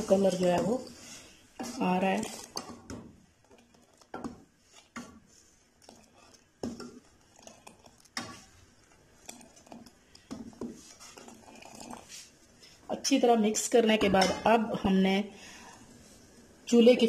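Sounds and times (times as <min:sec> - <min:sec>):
liquid pouring: 0:05.8 - 0:10.2, 0:11.0 - 0:12.3.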